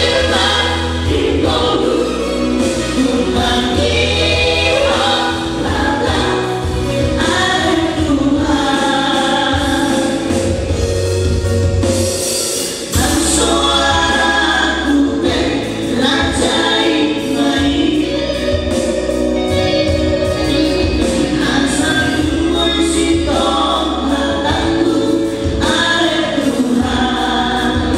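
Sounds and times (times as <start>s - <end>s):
male trio singing in harmony: 0.0s - 10.8s, 12.9s - 27.9s
instrumental backing with bass: 0.0s - 27.9s.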